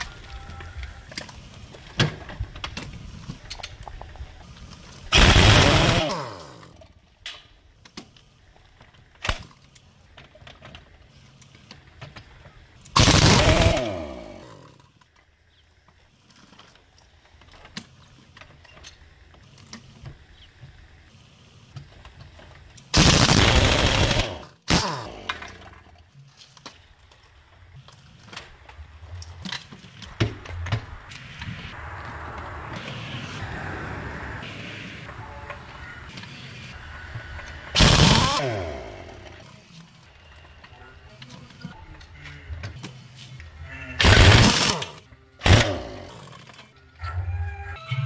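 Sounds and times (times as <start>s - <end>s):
power tool spinning: 4.9s - 6.9s, 12.9s - 15.0s, 23.0s - 25.8s, 37.3s - 40.1s, 44.0s - 46.7s.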